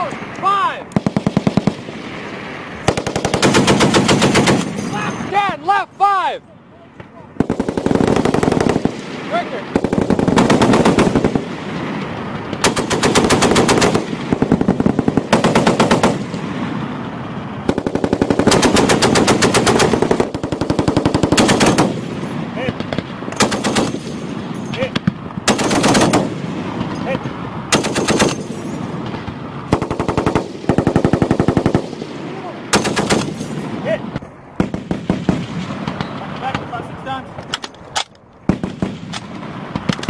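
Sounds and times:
machine gun bursts: 2.9s - 4.8s, 9.8s - 11.4s, 12.6s - 16.2s, 17.7s - 22.0s, 23.4s - 24.1s, 25.5s - 26.3s, 27.7s - 28.6s, 32.7s - 33.6s.

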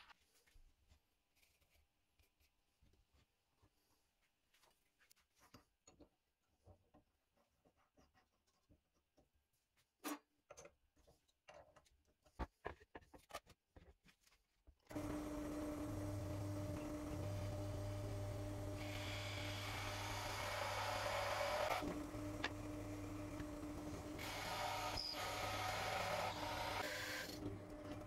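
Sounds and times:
drill press motor humming: 14.9s - 28.0s
drill bit rasping into wood: 15.0s - 28.0s.

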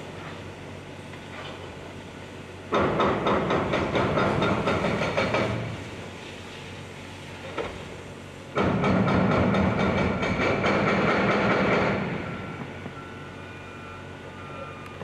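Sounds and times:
excavator engine under load: 0.0s - 15.0s.

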